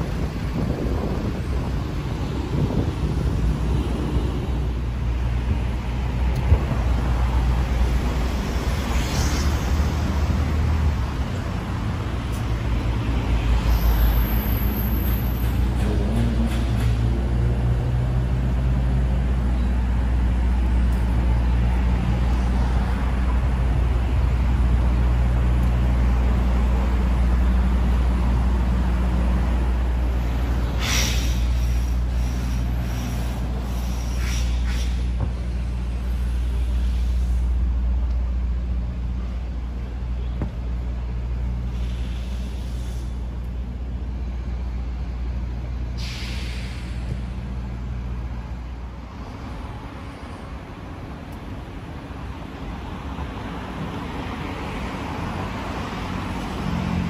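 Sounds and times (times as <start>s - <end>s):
traffic engine drone: 0.0s - 57.0s
short hisses: 30.8s - 35.1s, 46.0s - 47.1s.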